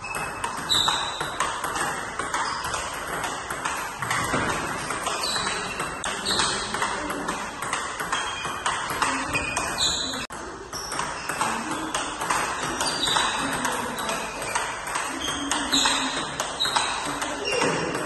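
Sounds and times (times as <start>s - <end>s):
table tennis ball clicking: 0.2s - 18.0s.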